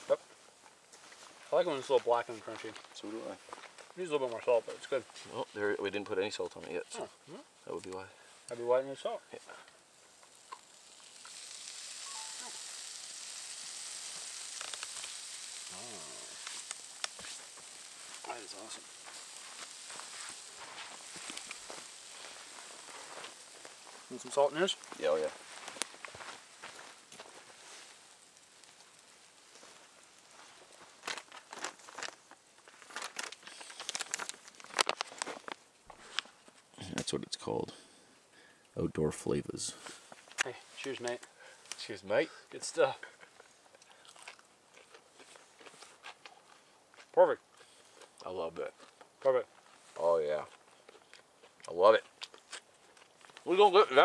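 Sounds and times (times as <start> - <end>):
fish sizzling in a frying pan: 7.6 - 35.8, 39.9 - 44.6, 53.4 - 54.0
plastic packet crinkling and tearing: 10.2 - 36.3.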